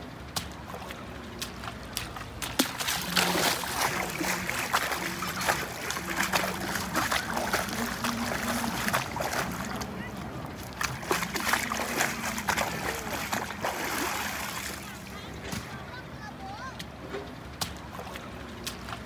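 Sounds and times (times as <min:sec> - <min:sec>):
water splashing from hand net: 0:00.3 - 0:15.7.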